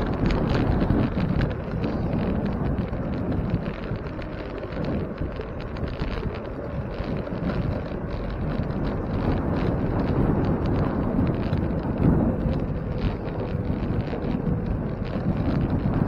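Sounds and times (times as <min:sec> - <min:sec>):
road and tyre noise: 0:00.0 - 0:16.0
wind rushing over microphone: 0:00.0 - 0:16.0.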